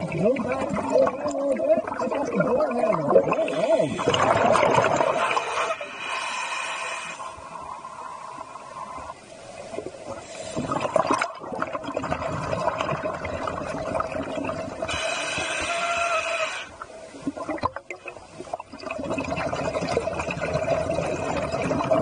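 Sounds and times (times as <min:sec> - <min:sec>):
bubbles gurgling: 0:00.0 - 0:05.9, 0:07.2 - 0:22.0
regulator breathing underwater: 0:03.3 - 0:08.7, 0:10.1 - 0:11.1, 0:14.8 - 0:16.8.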